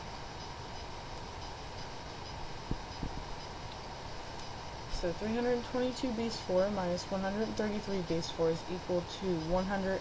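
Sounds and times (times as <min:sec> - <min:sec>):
steady background hiss: 0:00.0 - 0:10.0
marker tapping whiteboard: 0:02.7 - 0:03.2.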